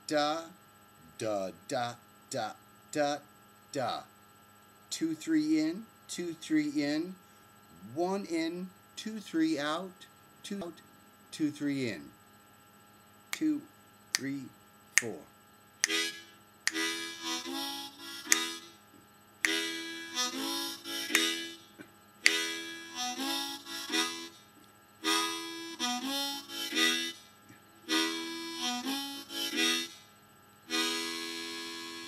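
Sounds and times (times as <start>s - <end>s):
harmonica rhythm riff: 15.8s - 18.8s, 19.4s - 24.4s, 25.0s - 27.2s, 27.8s - 30.1s, 30.7s - 32.0s.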